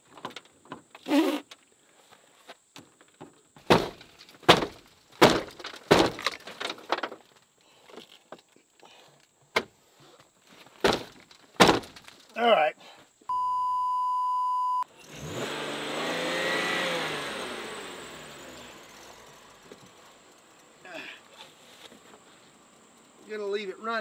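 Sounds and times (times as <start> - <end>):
sharp knocks and thuds: 3.2 - 7.2, 10.7 - 12.1.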